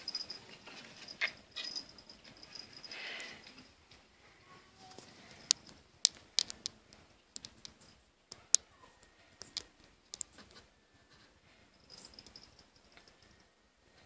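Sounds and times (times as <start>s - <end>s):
sharp clicks and light crackles: 5.0s - 8.7s, 9.4s - 10.6s.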